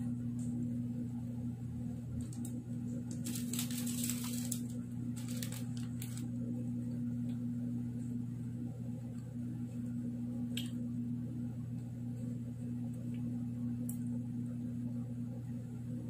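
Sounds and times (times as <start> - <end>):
steady low hum: 0.0 - 16.0
plastic wrappers crinkling: 2.2 - 6.4.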